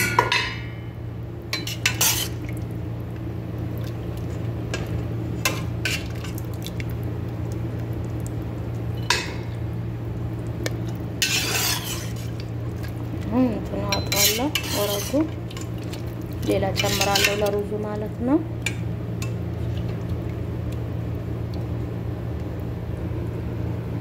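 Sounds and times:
low steady hum: 0.0s - 24.0s
spoon clinking against metal pot: 13.9s - 15.2s.

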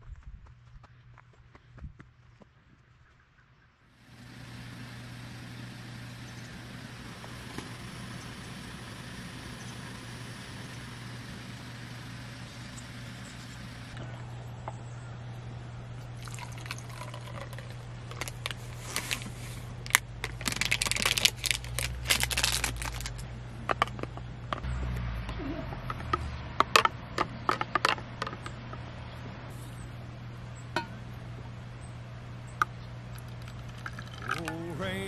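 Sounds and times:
low hum: 4.0s - 35.0s
water pouring into cup: 16.2s - 18.5s, 33.4s - 34.6s.

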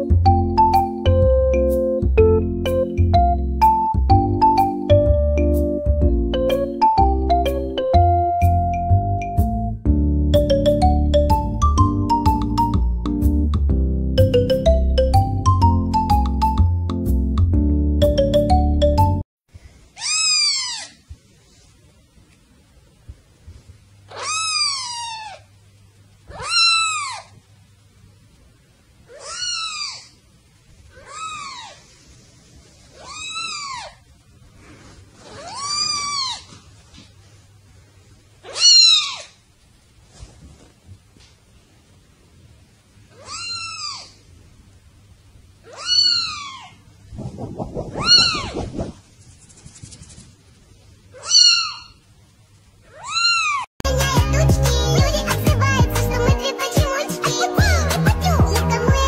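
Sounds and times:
rustle: 19.6s - 27.5s, 28.3s - 42.0s
kitten mewing: 24.1s - 25.4s, 26.3s - 27.4s, 29.1s - 30.2s, 31.0s - 31.8s, 32.9s - 34.0s, 43.1s - 44.2s, 45.6s - 46.8s, 47.9s - 49.0s.

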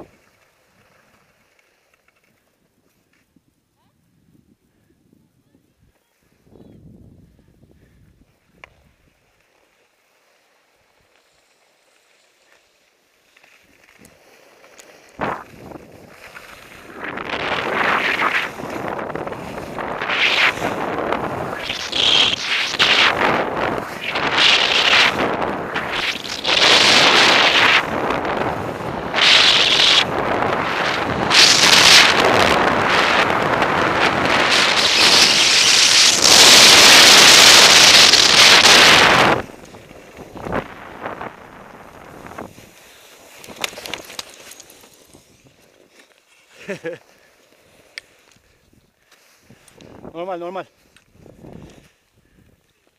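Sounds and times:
skis scraping over snow: 0.0s - 3.3s, 8.2s - 52.1s
wind rushing over microphone: 4.2s - 9.0s, 15.2s - 42.8s, 49.5s - 50.3s, 51.1s - 52.6s.

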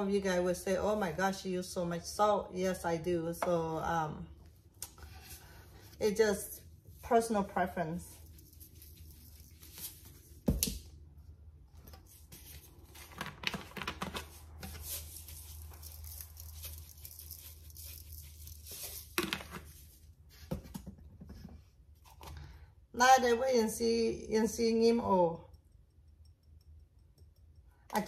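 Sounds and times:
seasoning shaken from canisters: 14.8s - 19.2s.

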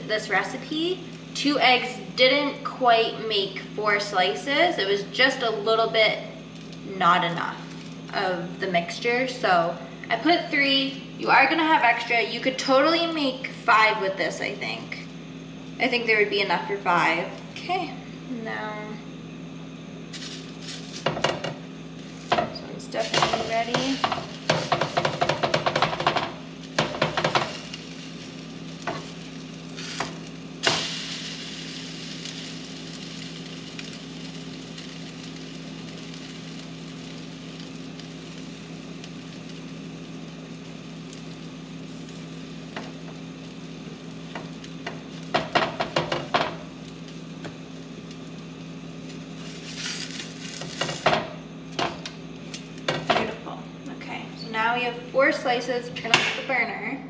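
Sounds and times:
bread sizzling in butter: 0.0s - 9.5s, 20.0s - 53.4s
spatula scraping and tapping pan: 22.3s - 27.8s, 28.8s - 29.2s.

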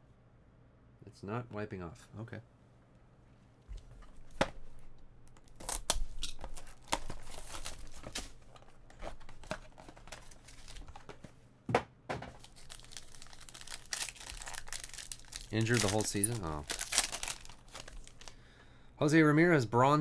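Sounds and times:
plastic wrap crinkling and tearing: 5.3s - 11.1s, 12.4s - 18.4s.

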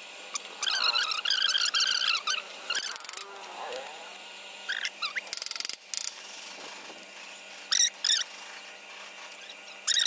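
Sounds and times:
arc welding crackle: 0.0s - 10.0s
high squeaky chirps: 4.7s - 5.6s, 7.7s - 8.4s, 9.4s - 10.0s.

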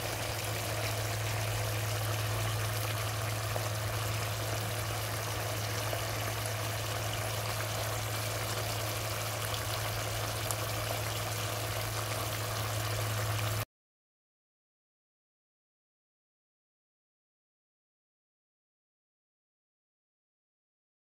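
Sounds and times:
low hum: 0.0s - 12.1s
sauce bubbling and sizzling: 0.0s - 13.6s.

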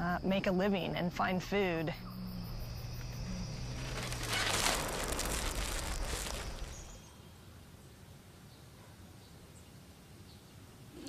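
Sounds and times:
insects chirping: 0.0s - 7.2s
rustling crackling noise: 2.6s - 7.2s.

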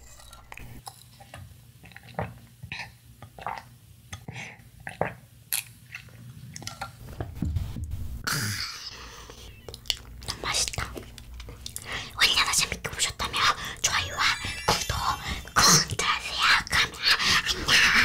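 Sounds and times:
chewing soggy cereal: 0.0s - 6.9s.

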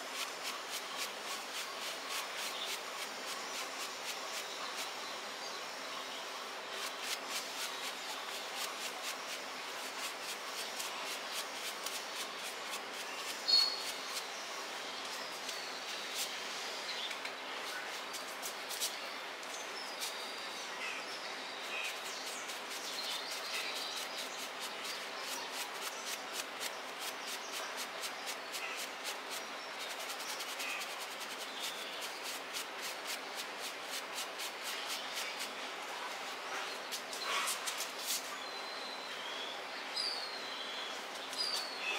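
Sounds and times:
plastic brush scrubbing fur: 0.0s - 4.9s, 6.8s - 14.2s, 21.7s - 35.5s
birds chirping: 0.0s - 41.9s.

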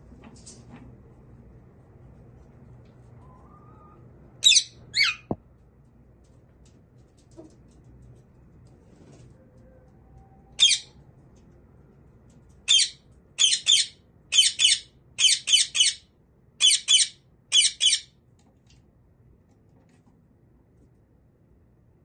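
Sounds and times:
parakeet squawking: 4.4s - 5.4s, 10.6s - 10.9s, 12.7s - 16.0s, 16.6s - 18.0s.

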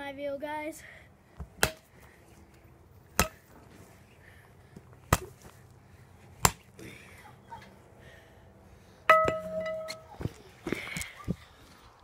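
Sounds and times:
baseball bat striking pumpkin: 1.4s - 1.9s, 3.1s - 3.5s, 5.1s - 5.5s, 6.4s - 6.7s, 9.1s - 10.2s.

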